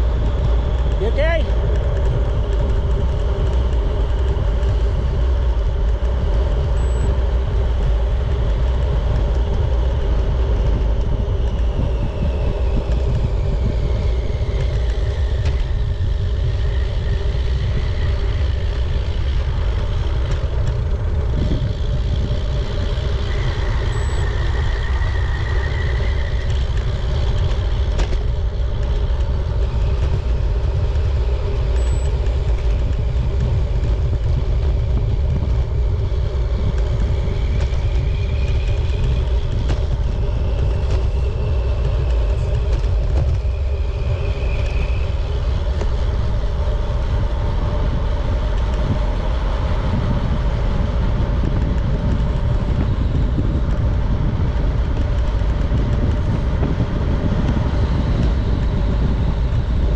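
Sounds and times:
constant hum: 0.0 - 59.9
road noise: 0.0 - 59.9
wind rumble on microphone: 0.0 - 59.9
faint whistling tone sliding down: 23.3 - 26.6, 43.2 - 45.2.

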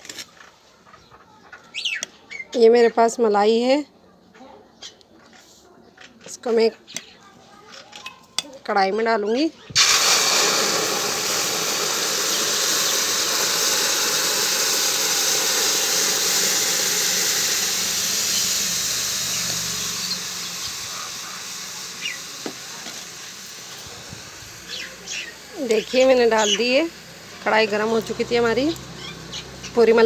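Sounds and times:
cream sizzling in hot pan: 9.8 - 30.0.

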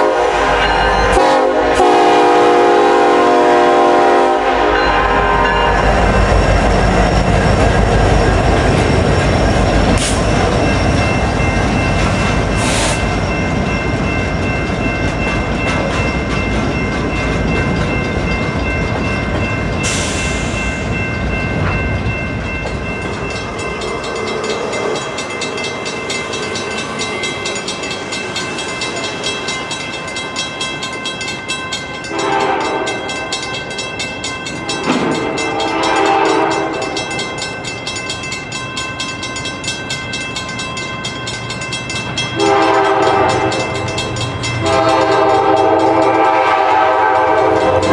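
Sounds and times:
diesel locomotive rumble: 0.0 - 47.9
mid-pitched rail noise: 0.0 - 47.9
high ringing: 4.6 - 47.9
freight cars rattling over rails: 33.2 - 40.6.

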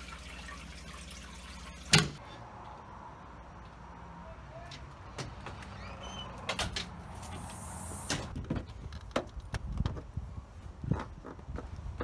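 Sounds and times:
glass storm door opening: 5.2 - 8.4.

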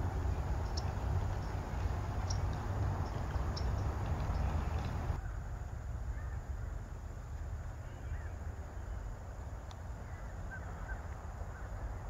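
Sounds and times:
wind rumble on microphone: 0.0 - 12.0
faint bird calls: 6.1 - 6.9, 7.7 - 9.1, 9.9 - 12.0.

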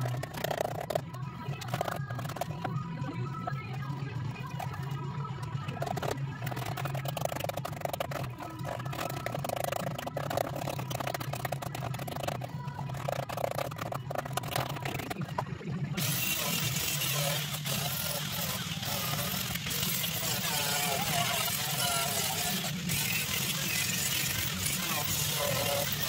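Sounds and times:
angle grinder grinding steel: 16.0 - 26.0
hand scraper scratching steel: 16.0 - 26.0.

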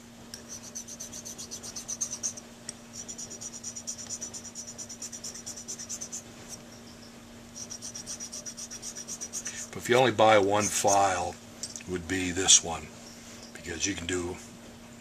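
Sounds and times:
needle file rasping on mouthpiece: 0.4 - 2.4, 3.0 - 6.6, 7.6 - 9.8.

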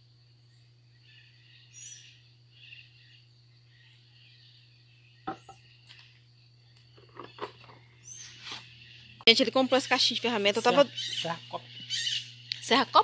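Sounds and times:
steady low hum: 0.0 - 13.0
faint bird chirps: 0.4 - 13.0
wood knocking on wood: 5.3 - 5.6.

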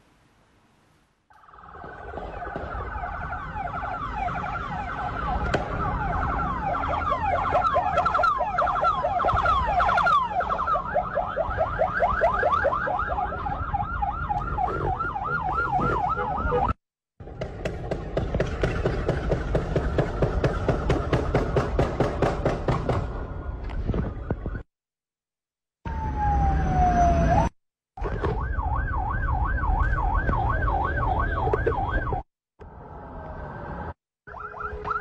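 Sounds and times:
road and engine rumble: 0.0 - 24.6, 25.9 - 35.0
sirens wailing: 1.3 - 16.8, 23.0 - 24.7, 25.8 - 35.0.

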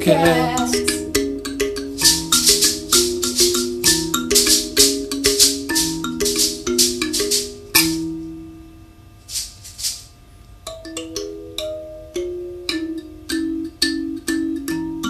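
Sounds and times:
thumb piano melody: 0.0 - 8.7, 10.6 - 15.0
rattle shaking: 1.7 - 8.1, 9.2 - 10.2.

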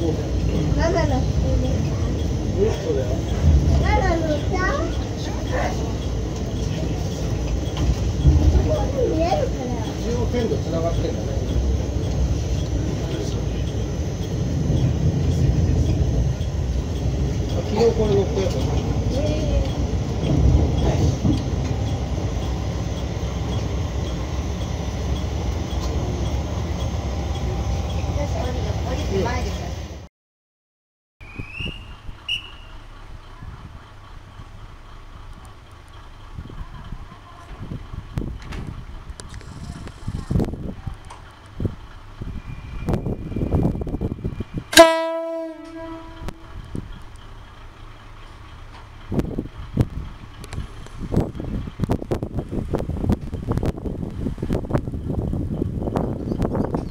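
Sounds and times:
diesel railcar engine idling: 0.0 - 30.1, 31.2 - 56.9
faint regular tick: 35.3 - 36.4, 37.4 - 41.6, 46.2 - 47.3, 48.2 - 52.4
railcar horn blast: 44.7 - 46.8.

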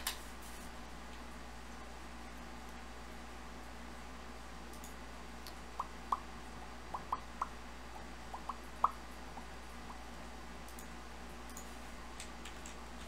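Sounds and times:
faint low hum: 0.0 - 13.0
computer clicks: 10.6 - 12.8.

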